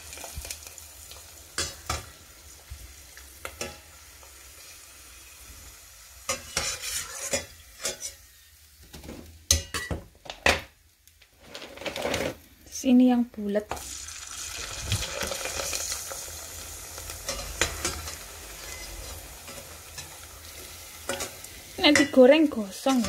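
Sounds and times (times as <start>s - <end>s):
cracker sizzling in hot oil: 0.0s - 9.8s, 13.7s - 23.0s
metal spatula scraping pot: 6.3s - 8.3s, 17.3s - 22.2s.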